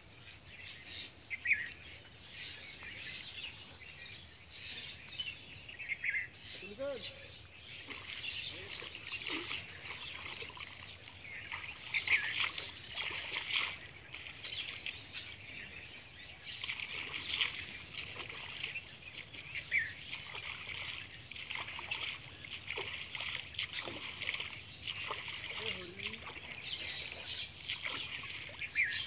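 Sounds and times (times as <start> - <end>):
net splashing in water: 7.9 - 15.0, 16.5 - 29.0.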